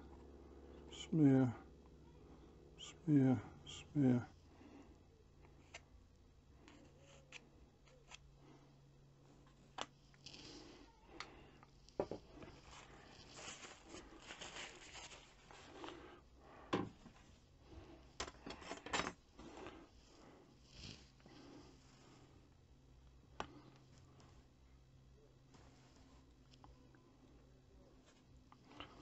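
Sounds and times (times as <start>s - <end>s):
paper tissue rustling: 12.4s - 15.9s.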